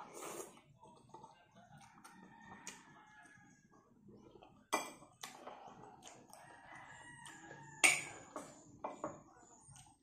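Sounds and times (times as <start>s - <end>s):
rooster crowing: 2.1s - 3.5s, 6.4s - 8.3s
spoon clinking against plate: 7.8s - 9.2s.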